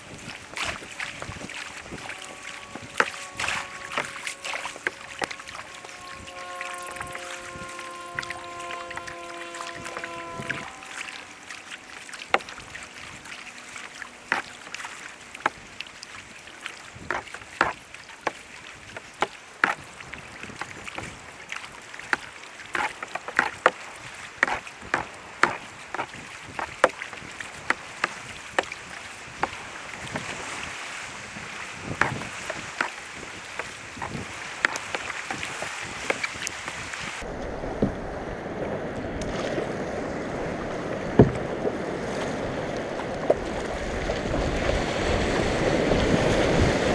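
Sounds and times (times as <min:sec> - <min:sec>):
water slapping plastic hull: 0:00.0 - 0:37.2
kayak paddle splashing: 0:00.0 - 0:38.0, 0:39.2 - 0:46.9
sea water wash: 0:00.0 - 0:46.9
wind on microphone: 0:00.0 - 0:46.9.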